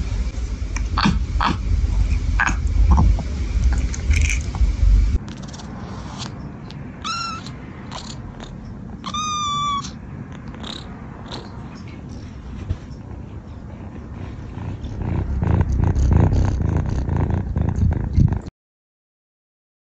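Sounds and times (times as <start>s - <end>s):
low rumble: 0.0s - 5.2s, 14.3s - 18.5s
cat meowing: 7.0s - 8.2s, 9.0s - 11.5s.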